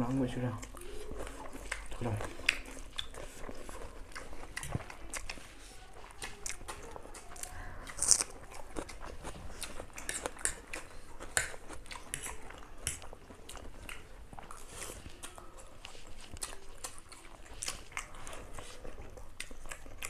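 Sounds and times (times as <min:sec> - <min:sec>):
chewing and slurping noodles: 0:00.0 - 0:20.0.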